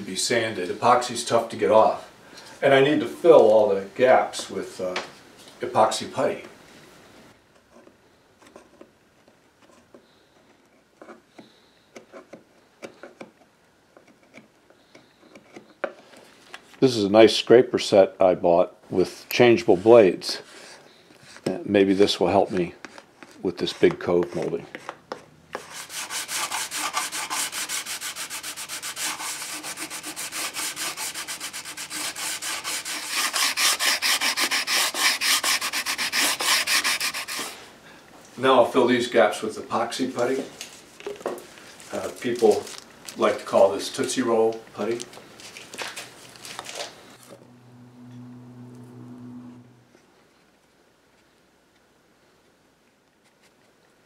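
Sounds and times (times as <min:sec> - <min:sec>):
chisel chipping and scraping: 0:10.6 - 0:16.0, 0:22.8 - 0:37.5.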